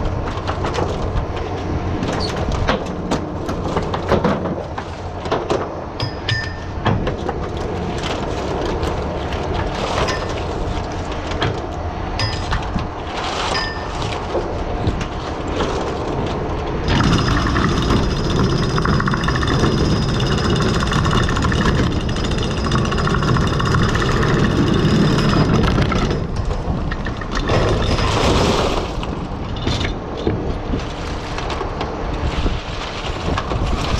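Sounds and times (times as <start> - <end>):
boat engine and winch running: 0.0 - 33.9
steady whine: 7.5 - 27.7
oyster shells clattering: 16.9 - 28.1.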